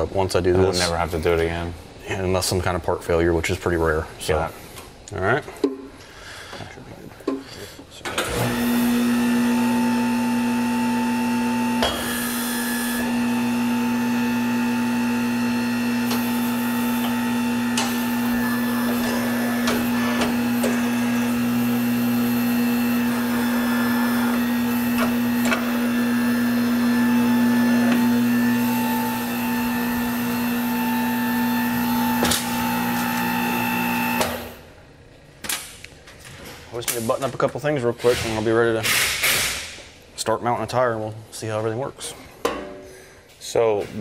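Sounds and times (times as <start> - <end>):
electric motor hum: 8.2 - 34.8.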